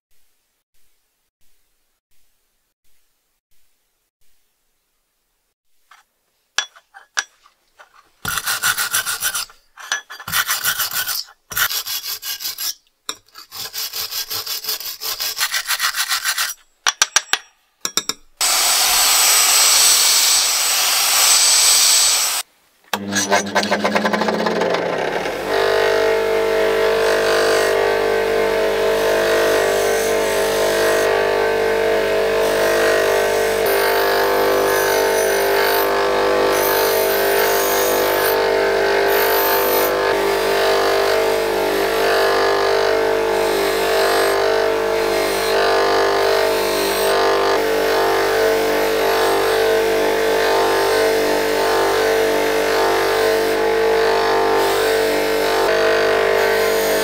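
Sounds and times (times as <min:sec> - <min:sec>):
bench grinder humming: 0:18.4 - 0:57.0
vacuum cleaner whining: 0:18.4 - 0:57.0.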